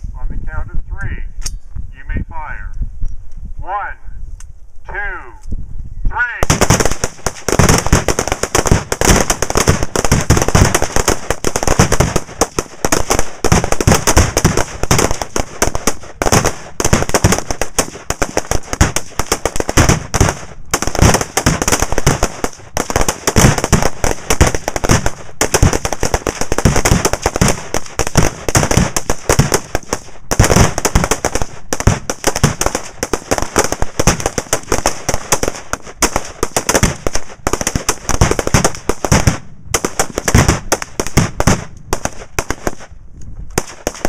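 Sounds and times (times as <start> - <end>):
explosive targets detonating: 6.4 - 42.1
rifle fire: 6.4 - 42.9, 43.6 - 44.0.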